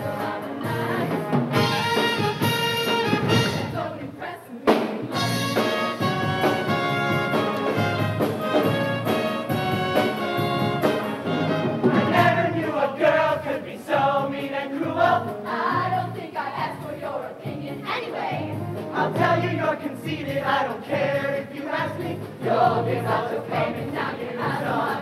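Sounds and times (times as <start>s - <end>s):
brass-led live band playing: 0.0s - 4.0s, 4.8s - 12.9s
choir singing: 3.4s - 6.6s, 10.9s - 25.0s.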